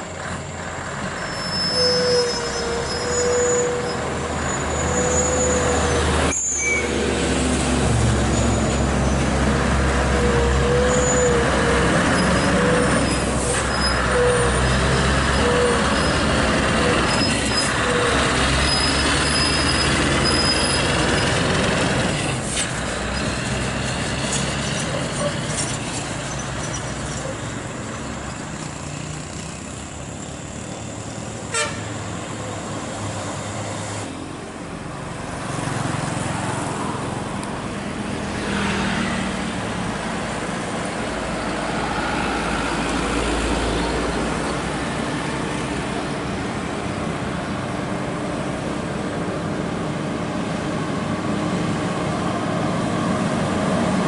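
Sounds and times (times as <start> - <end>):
diesel trucks passing: 0.0 - 54.0
tyre and traffic noise: 0.0 - 54.0
truck horn: 31.4 - 32.1.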